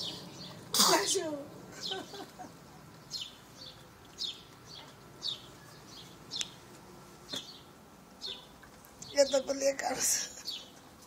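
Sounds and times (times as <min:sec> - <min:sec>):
small bird chirping: 0:03.0 - 0:06.6, 0:07.3 - 0:10.8.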